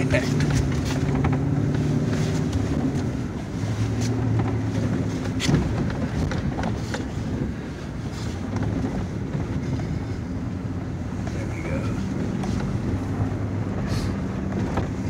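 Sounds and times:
truck engine under load: 0.0s - 15.0s
truck knocks and jolts: 3.9s - 7.5s.

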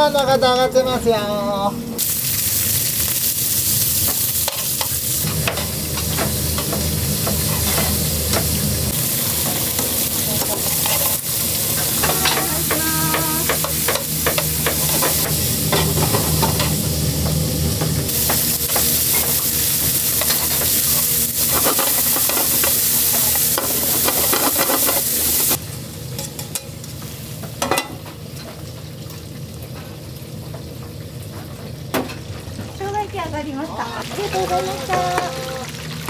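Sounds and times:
meat sizzling in a frying pan: 2.0s - 36.0s
kitchen clatter: 4.0s - 8.6s, 9.3s - 20.8s, 21.4s - 25.5s, 27.6s - 28.8s, 34.0s - 35.6s.

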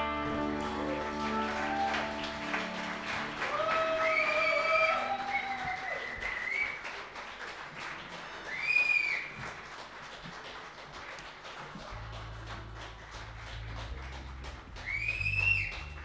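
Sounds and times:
audience applause: 0.0s - 16.0s
sharp whistles: 4.0s - 6.8s, 8.5s - 9.4s, 14.8s - 16.0s.

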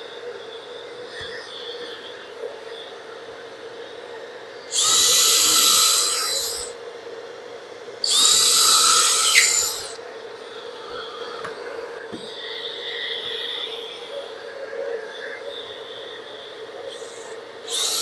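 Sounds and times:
power tool motor whining: 4.7s - 6.7s, 8.0s - 10.0s, 16.9s - 18.0s.

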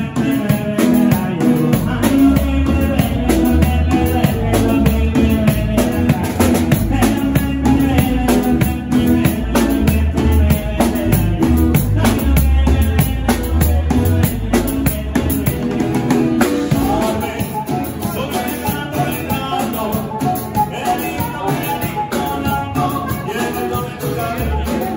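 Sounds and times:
deep bass: 0.0s - 17.4s
acoustic guitar: 0.0s - 24.9s
drum kit steady beat: 0.0s - 24.9s
person singing into a microphone: 0.0s - 24.9s.

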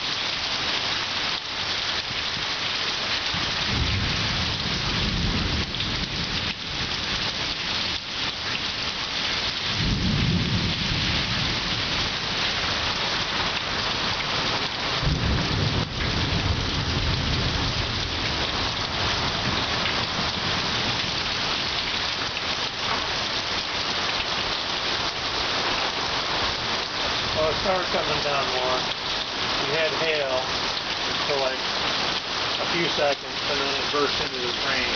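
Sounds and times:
heavy rain falling: 0.0s - 34.9s
thunder rumbling: 9.7s - 12.0s, 15.0s - 21.2s.

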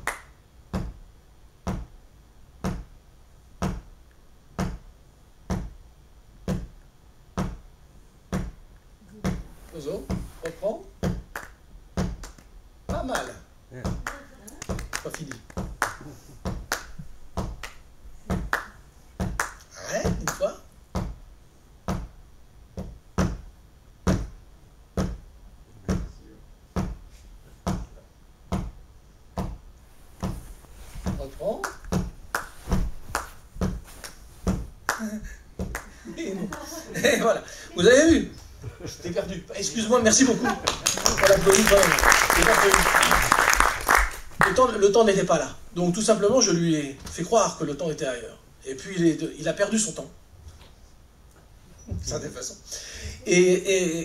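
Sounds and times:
person clapping hands: 0.0s - 0.3s, 11.3s - 12.5s, 14.0s - 20.5s, 31.6s - 34.2s, 34.9s - 36.7s, 40.6s - 44.7s.

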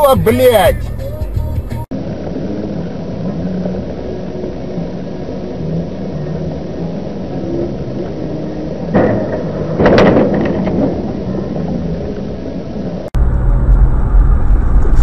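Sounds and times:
car engine and road rumble: 0.0s - 15.0s
loud thump: 9.0s - 11.0s.

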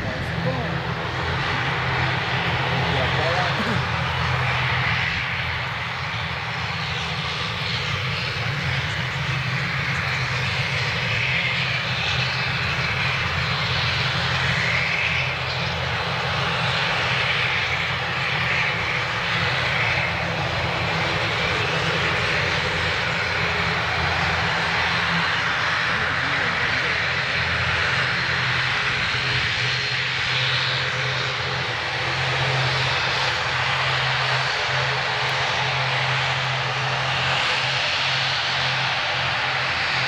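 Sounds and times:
turboprop engines running: 0.0s - 40.0s.

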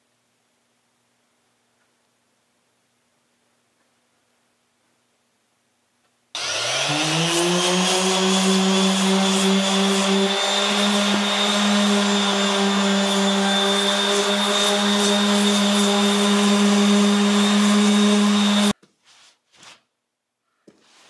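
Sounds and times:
power sander motor whine: 6.4s - 18.7s.

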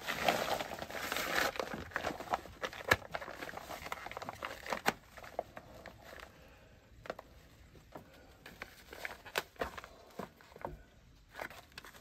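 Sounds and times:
foil hood rustling and crinkling: 0.0s - 12.0s
mask handling clicks and knocks: 1.4s - 6.3s, 7.0s - 12.0s.

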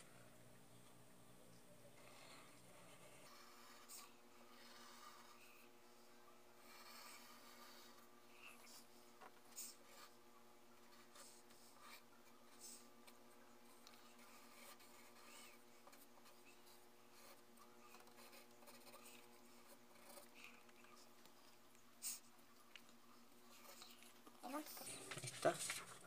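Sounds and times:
pencil scratching on paper: 2.0s - 5.9s, 6.6s - 22.3s.

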